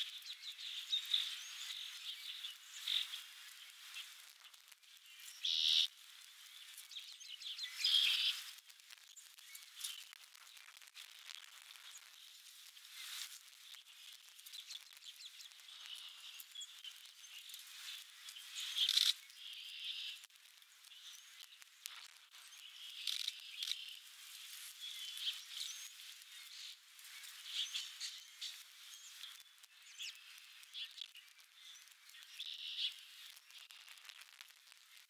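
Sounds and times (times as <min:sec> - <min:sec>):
small birds chirping: 0:00.0 - 0:35.0.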